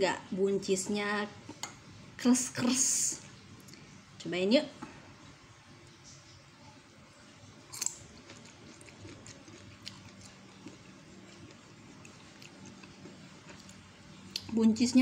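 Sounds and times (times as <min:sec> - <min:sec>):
chewing crisp food: 0:07.6 - 0:15.0.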